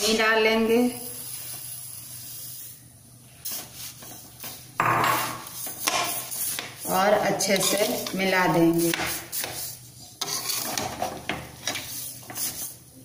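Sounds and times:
sugar pouring with soft hiss: 0.1 - 4.8
metal skimmer scraping pan: 10.0 - 12.3.

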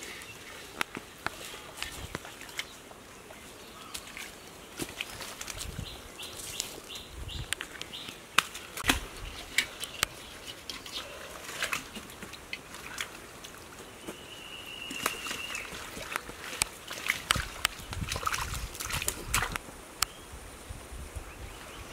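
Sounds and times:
mud squelching: 0.0 - 19.6
leaves and stems rustling: 0.0 - 20.4
small wet slaps: 7.5 - 14.2, 14.8 - 19.6.

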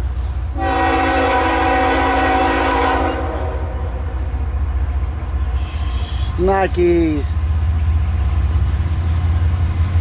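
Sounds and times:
locomotive air horn: 0.5 - 4.1, 5.5 - 6.4.

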